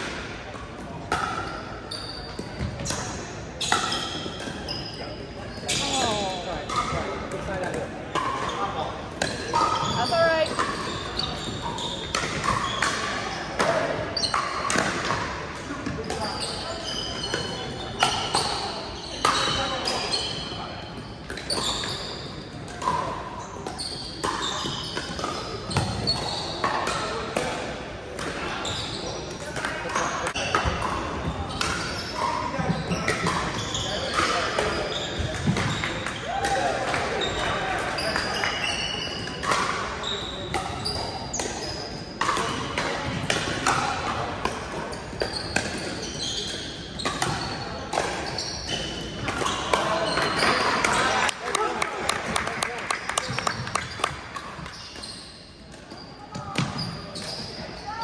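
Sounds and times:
sneakers squeaking on hardwood: 1.4 - 7.1, 9.2 - 13.2, 15.8 - 26.8, 30.0 - 36.1, 44.9 - 51.1, 53.2 - 58.0.

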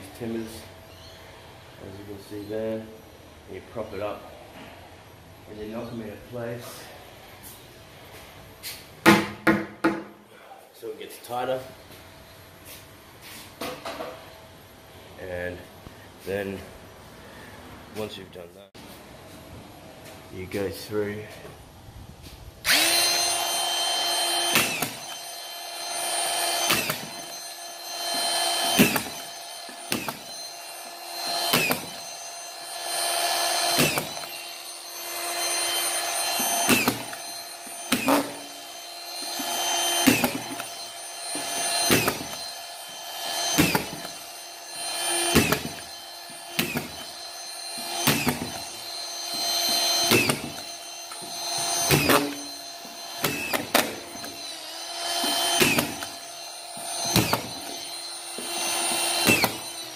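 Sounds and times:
screwdriver motor whining: 22.6 - 59.9.

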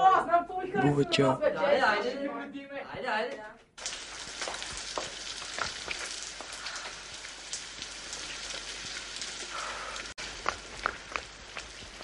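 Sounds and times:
rain falling on wet street: 3.8 - 12.0
water drips: 3.8 - 12.0.

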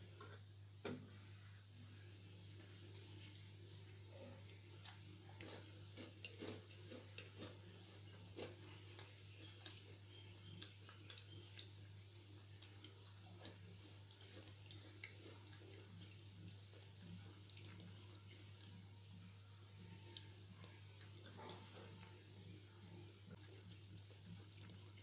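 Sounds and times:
faint irregular ticks: 4.1 - 25.0.

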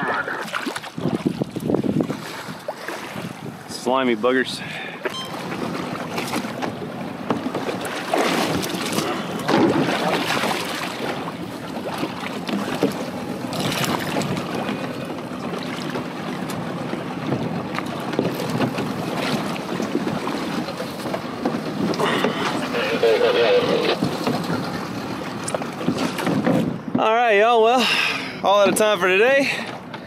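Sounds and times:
water slapping against hull: 0.0 - 27.2
wind buffeting microphone: 0.7 - 3.9.

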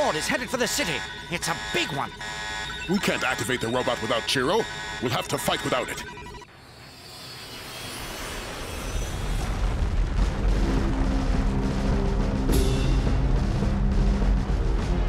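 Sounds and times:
deep rumble: 8.0 - 15.0
background score music: 9.9 - 15.0.

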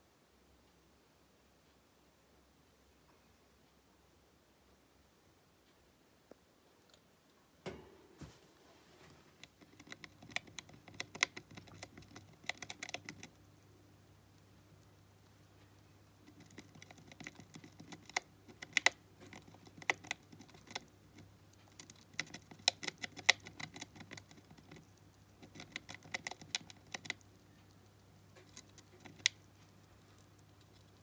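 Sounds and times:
hamster gnawing: 8.8 - 31.0.

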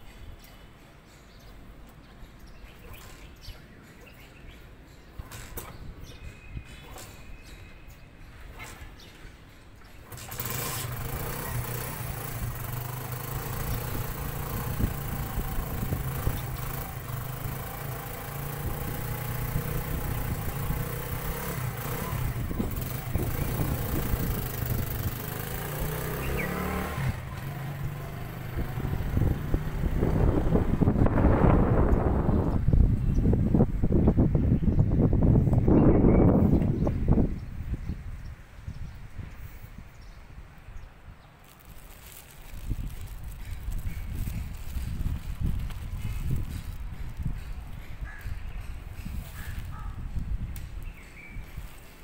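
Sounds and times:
engine starting and running: 10.0 - 32.6.

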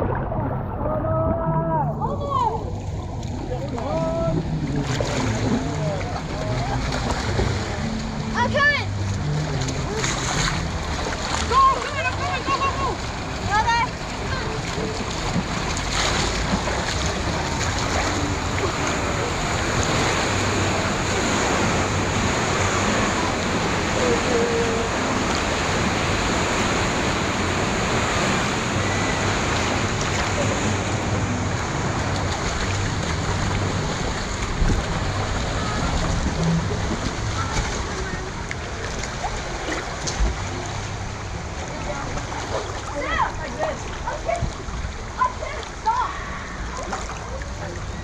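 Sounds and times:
water rushing and sloshing: 0.0 - 48.0.

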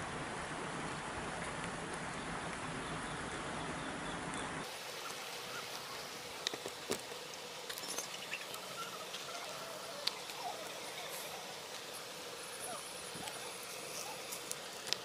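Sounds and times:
corn kernels sizzling: 4.6 - 15.0
kernels ticking and cracking: 13.2 - 15.0.

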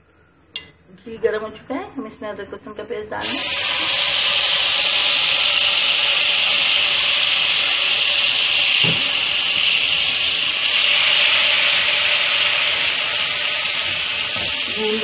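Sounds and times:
paste sizzling in hot fat: 3.2 - 15.0.

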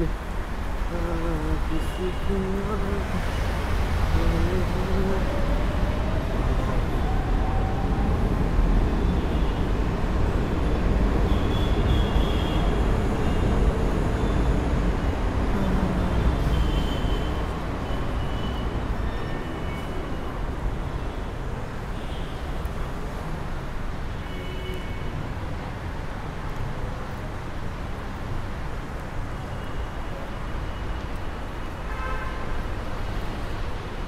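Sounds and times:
vehicle rumble: 0.0 - 21.9.

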